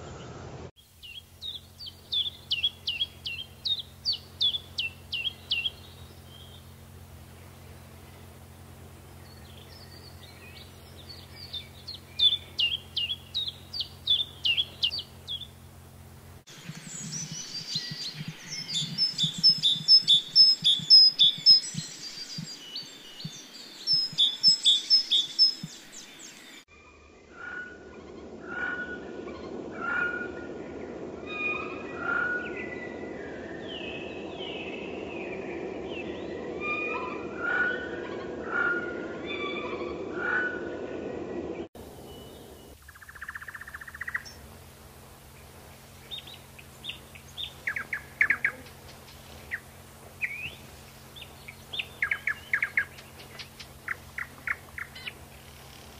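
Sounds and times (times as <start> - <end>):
steady low hum: 0.0 - 27.2, 27.8 - 55.9
chiffchaff singing: 16.5 - 26.6.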